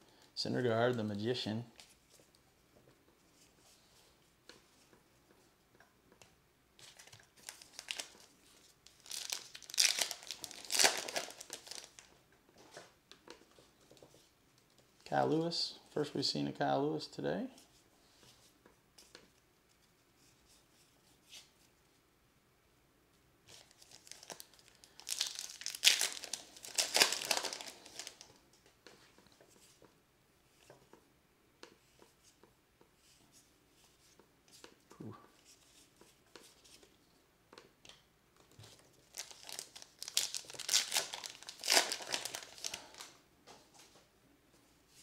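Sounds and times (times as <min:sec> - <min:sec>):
plastic wrappers crinkling and tearing: 0:06.8 - 0:12.1, 0:23.5 - 0:28.4, 0:38.6 - 0:43.2.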